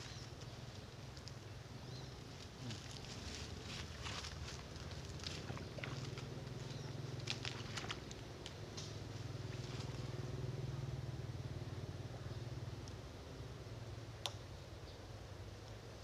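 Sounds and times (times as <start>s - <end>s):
engine drone: 0.0s - 16.0s.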